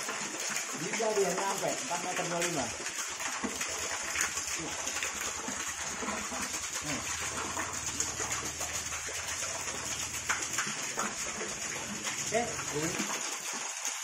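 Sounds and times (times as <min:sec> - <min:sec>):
water splattering into a pond: 0:00.0 - 0:14.0.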